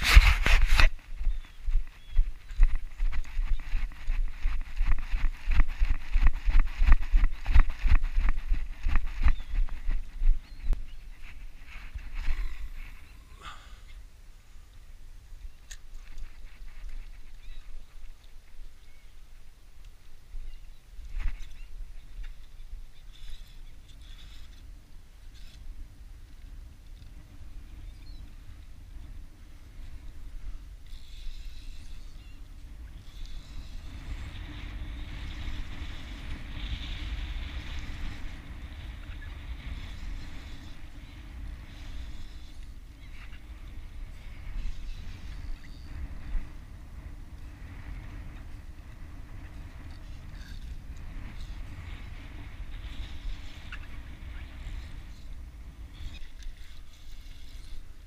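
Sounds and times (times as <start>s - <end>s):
wind rumbling on microphone: 0.0s - 58.0s
bird calls: 1.0s - 5.3s, 8.8s - 14.0s, 17.0s - 18.1s.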